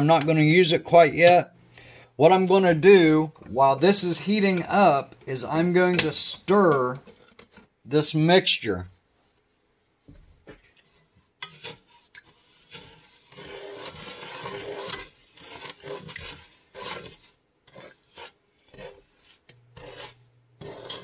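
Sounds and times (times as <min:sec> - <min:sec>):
wooden spoon scraping metal pot: 0:00.0 - 0:08.2, 0:08.9 - 0:21.0.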